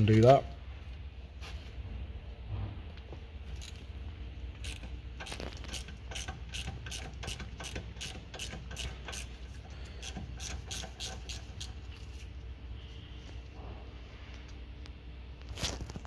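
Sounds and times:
ratchet clicking: 4.5s - 12.3s.

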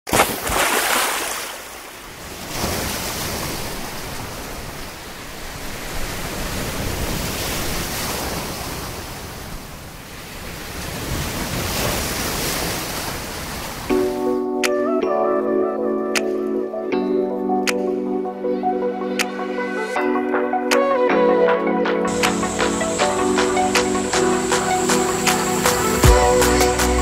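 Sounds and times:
sea waves washing ashore: 0.1s - 14.4s, 22.0s - 27.0s.

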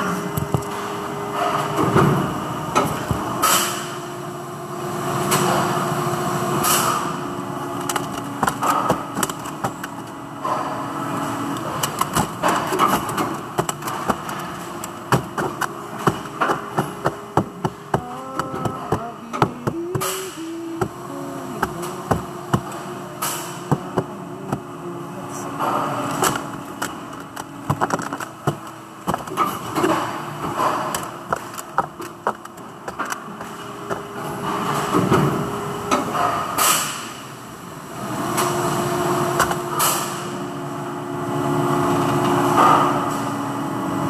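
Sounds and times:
machine hum: 0.0s - 44.0s
sharp clicks and knocks: 11.6s - 21.0s, 25.6s - 34.1s.

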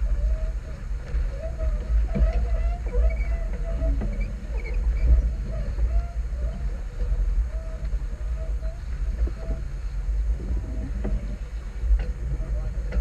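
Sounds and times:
short faint squeaks: 0.0s - 9.7s
wind buffeting microphone: 0.0s - 13.0s.

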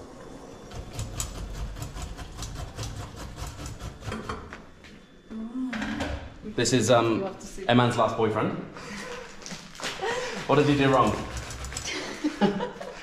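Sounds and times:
utensil scraping a cooking pot: 0.8s - 4.6s, 10.5s - 12.1s.

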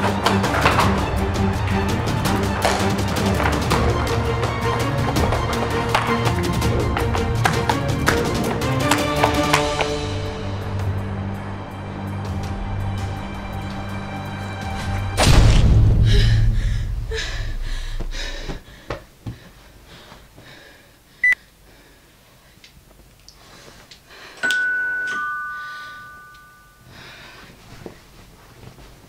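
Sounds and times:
deep rumbling boom: 15.1s - 18.4s
two-note doorbell chime: 24.4s - 26.9s.

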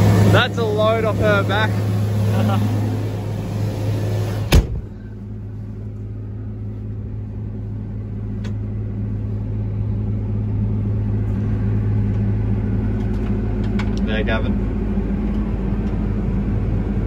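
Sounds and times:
combine harvester hum: 0.0s - 17.0s
sharp clunk: 4.5s - 4.9s.

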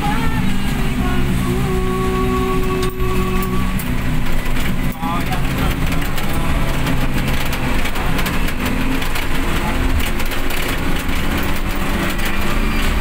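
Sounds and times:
rain hitting roof and windscreen: 0.0s - 13.0s
tyres on wet tarmac: 0.0s - 13.0s
van engine running: 0.0s - 13.0s.

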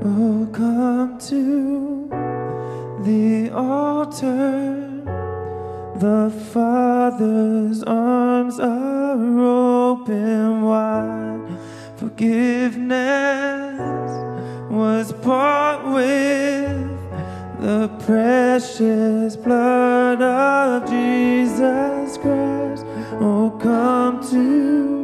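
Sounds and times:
digital piano: 0.0s - 25.0s
man and woman singing: 12.0s - 25.0s.

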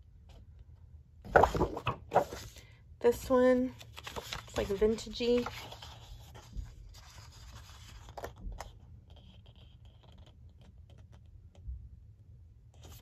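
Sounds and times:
paper clicks and rustles: 1.3s - 2.6s, 3.7s - 11.3s.

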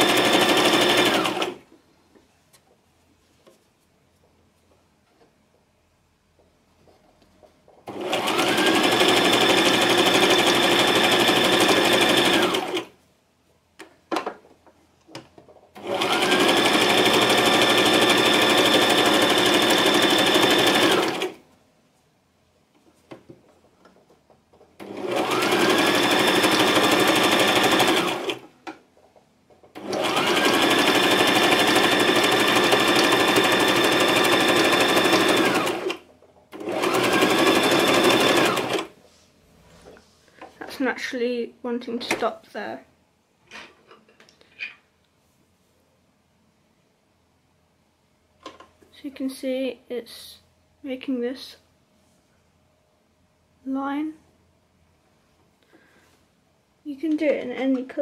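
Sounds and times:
sewing machine stitching: 0.0s - 1.6s, 7.8s - 12.9s, 15.7s - 21.4s, 24.8s - 28.5s, 29.7s - 38.9s.

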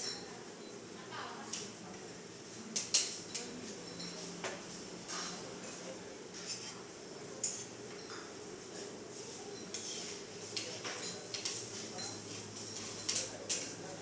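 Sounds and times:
cutlery clinking on a plate: 2.8s - 6.8s, 7.4s - 8.4s, 9.5s - 13.9s.

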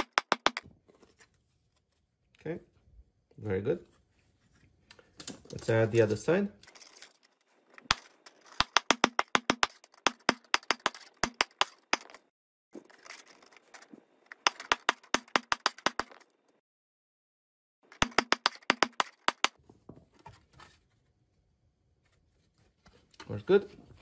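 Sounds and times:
hammer tapping plastic tiles: 0.0s - 0.6s, 7.9s - 12.2s, 14.4s - 16.2s, 17.9s - 19.6s.

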